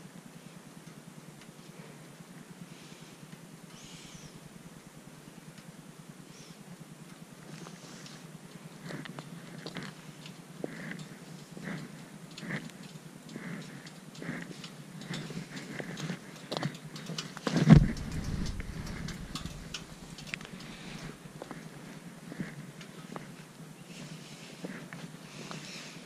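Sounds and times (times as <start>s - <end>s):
footsteps on gritty ground: 17.6s - 21.6s.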